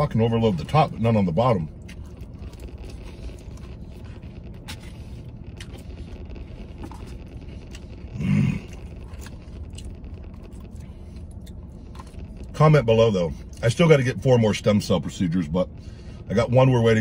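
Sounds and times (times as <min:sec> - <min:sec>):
low rumble inside truck cab: 0:00.0 - 0:17.0
chewing: 0:01.7 - 0:12.5.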